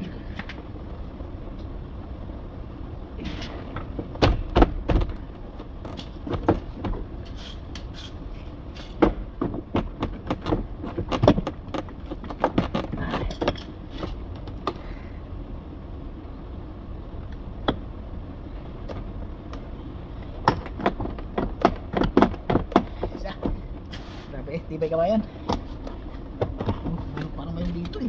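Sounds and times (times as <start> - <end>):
low background noise: 0.0 - 28.0
plastic panel knocks and rattles: 5.9 - 7.0, 9.0 - 13.6, 20.5 - 23.6.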